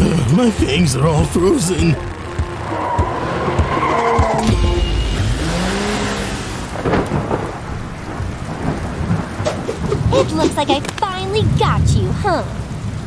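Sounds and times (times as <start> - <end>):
rushing swell: 0.2 - 7.8
wind and sleet hiss: 5.4 - 13.0
deep thunder-like rumble: 6.6 - 13.0.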